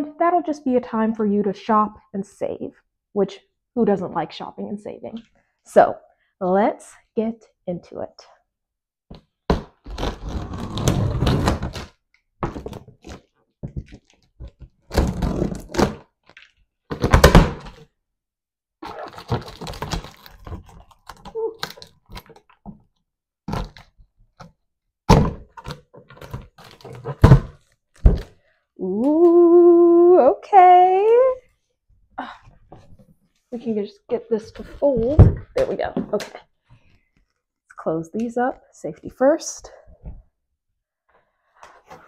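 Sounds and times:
tape being pulled: 9.6 - 12.0, 18.8 - 22.6.

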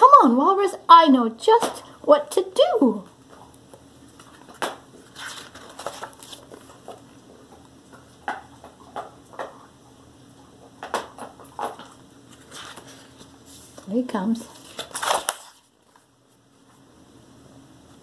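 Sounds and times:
book pages rustling and tapping: 4.1 - 7.1, 10.8 - 13.9.

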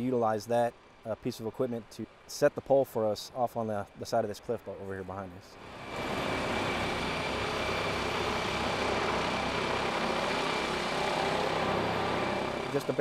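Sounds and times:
helicopter rotor and engine: 0.0 - 13.0
thin high whine: 5.6 - 13.0.

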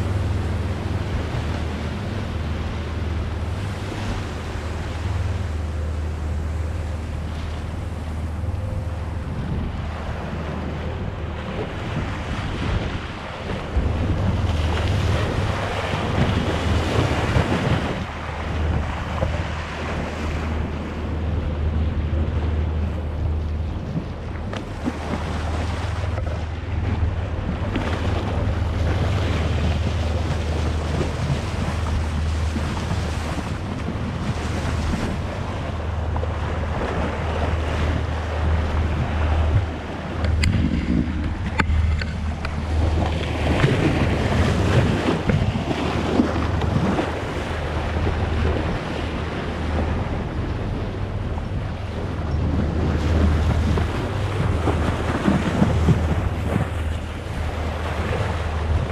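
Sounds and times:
low drone: 0.0 - 58.9
sea water rushing: 0.0 - 58.9
wind buffeting microphone: 0.0 - 58.9.

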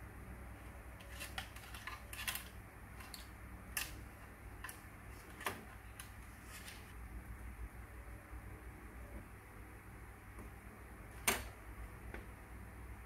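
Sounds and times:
faint low hum: 0.0 - 13.0.

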